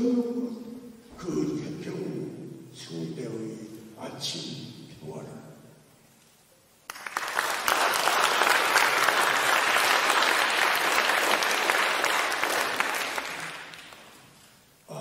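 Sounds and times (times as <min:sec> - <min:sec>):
audience applauding: 0:06.9 - 0:14.3.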